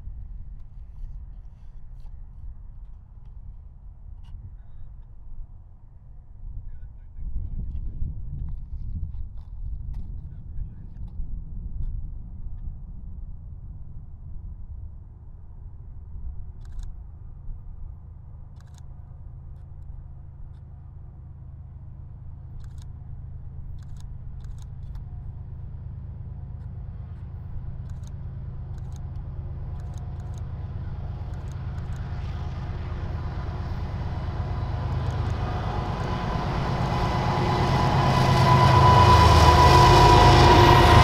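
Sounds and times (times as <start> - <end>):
diesel locomotive engine drone: 9.6 - 41.0.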